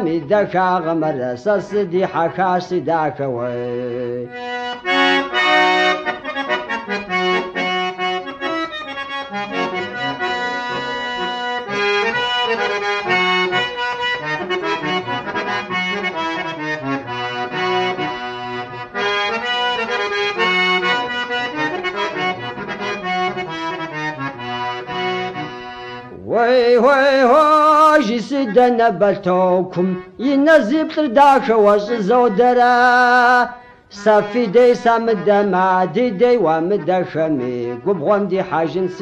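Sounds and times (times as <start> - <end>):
accordion folk music: 0.0 - 39.0.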